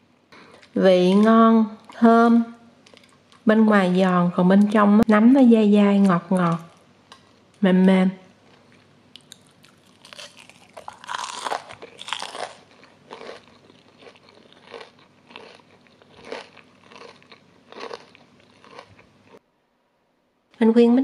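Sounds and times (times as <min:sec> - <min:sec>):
person chewing crunchy food: 0:02.8 - 0:03.4, 0:08.4 - 0:19.4.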